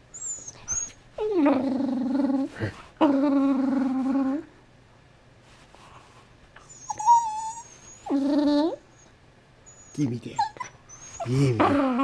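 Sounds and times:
dog whining: 0.0s - 4.6s, 6.6s - 12.0s
dog growling: 1.2s - 4.5s, 11.2s - 12.0s.

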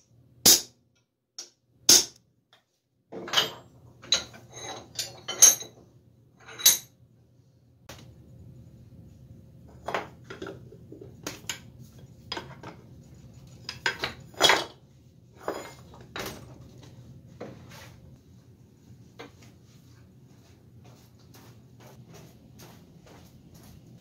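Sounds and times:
metal vise clanking and knocking: 3.1s - 5.8s.

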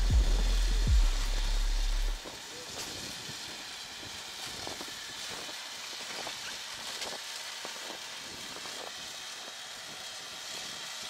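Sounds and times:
wind hiss: 0.0s - 11.0s.

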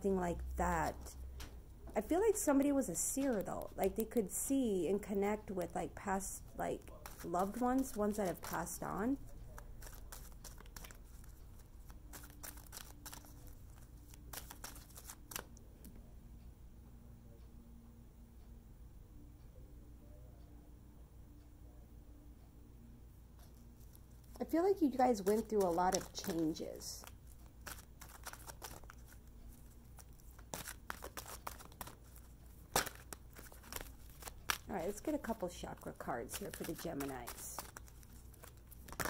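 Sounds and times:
faint steady hum: 0.0s - 39.0s
cards shuffling: 6.8s - 15.5s, 23.8s - 39.0s.

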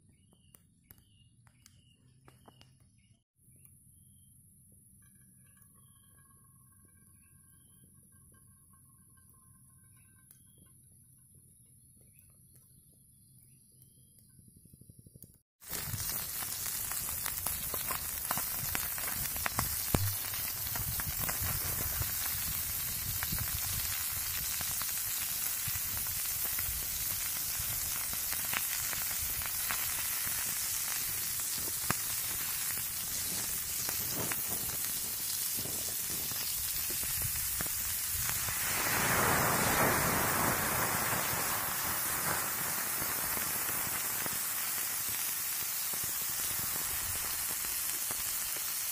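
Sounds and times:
food sizzling in a pan: 15.6s - 48.9s
wood fire crackling: 15.6s - 48.9s.

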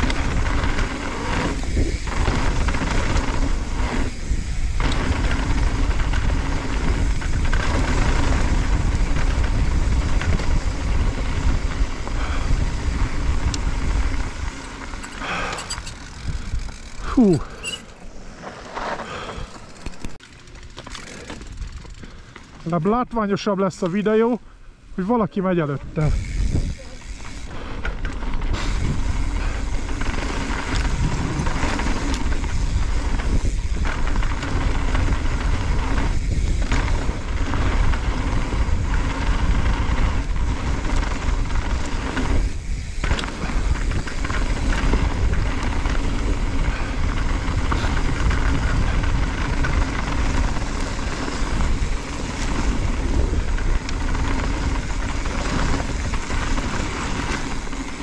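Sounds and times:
wind noise on microphone: 0.0s - 17.9s, 25.8s - 58.0s
bike rattling: 0.0s - 58.0s
tyres rolling over stones: 13.6s - 22.8s, 33.8s - 58.0s.

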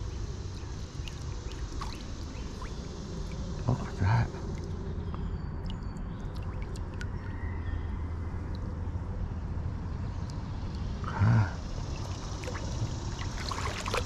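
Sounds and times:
creek water rushing: 0.7s - 4.7s, 11.9s - 14.0s.

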